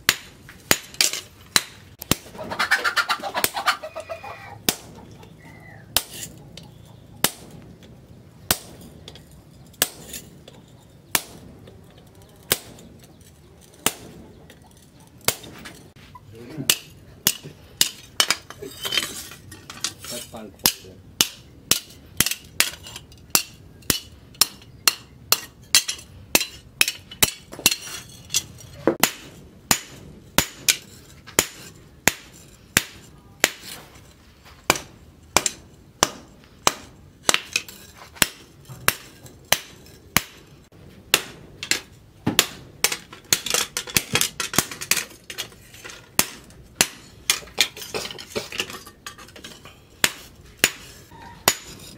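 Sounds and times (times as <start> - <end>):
hammer striking metal on anvil: 16.7 - 18.5, 20.6 - 28.4.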